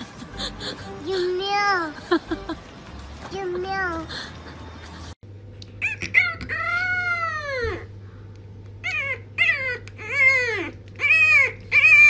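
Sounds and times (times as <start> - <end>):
puppy howling: 5.8 - 7.8, 8.8 - 12.0.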